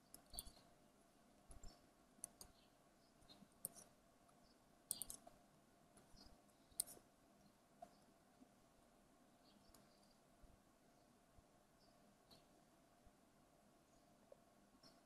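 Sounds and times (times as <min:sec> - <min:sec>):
mouse and keyboard clicks: 0:00.0 - 0:00.6, 0:01.5 - 0:02.6, 0:03.3 - 0:03.9, 0:04.9 - 0:05.4, 0:06.0 - 0:07.0.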